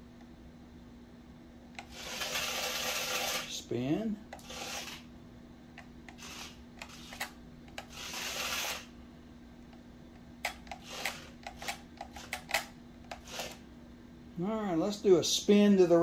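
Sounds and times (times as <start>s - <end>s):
steady low hum: 0.0s - 16.0s
toy car motor whir: 1.8s - 3.6s, 4.4s - 5.1s, 6.1s - 8.9s, 10.6s - 13.6s.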